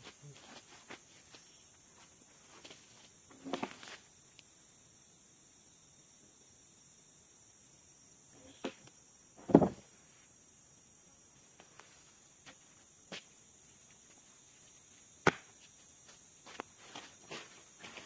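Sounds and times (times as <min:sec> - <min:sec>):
heavy thump: 0:09.4 - 0:09.8.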